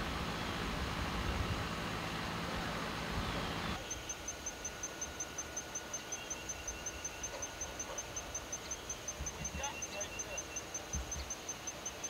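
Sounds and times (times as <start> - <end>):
insect chirping: 3.8 - 12.0.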